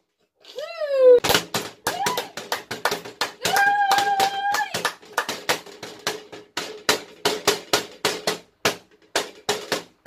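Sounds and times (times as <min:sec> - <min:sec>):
hands slapping metal baking tray: 0:01.2 - 0:10.0
hands clapping: 0:01.9 - 0:06.1.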